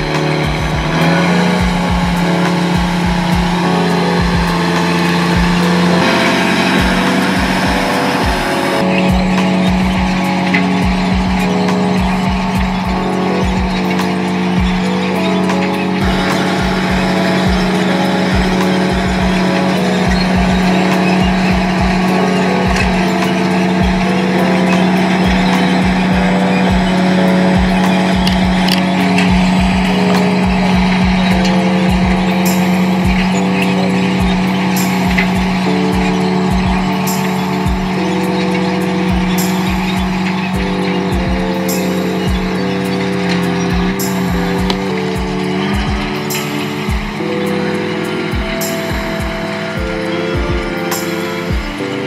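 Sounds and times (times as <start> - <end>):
kick drum beats: 0.0 - 42.6, 43.4 - 47.6, 48.2 - 52.0
melodic pitched notes: 0.0 - 52.0
synth chords: 0.0 - 52.0.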